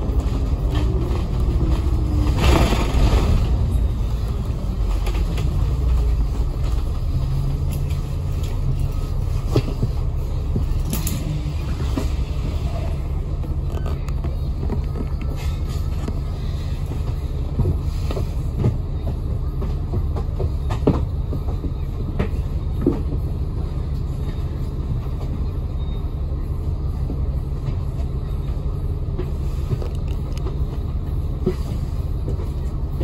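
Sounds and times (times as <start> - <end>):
bus engine and road rumble: 0.0 - 33.0.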